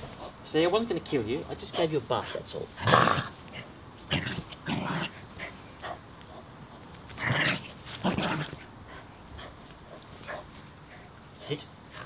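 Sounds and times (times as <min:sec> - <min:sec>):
small dog growling and yelping: 0:02.8 - 0:06.5, 0:07.1 - 0:10.0.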